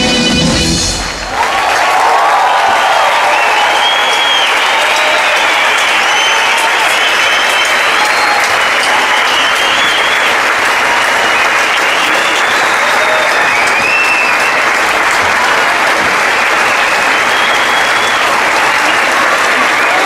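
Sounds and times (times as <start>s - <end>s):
audience applauding: 0.0s - 20.0s
high whistles: 3.0s - 14.9s, 16.4s - 18.6s.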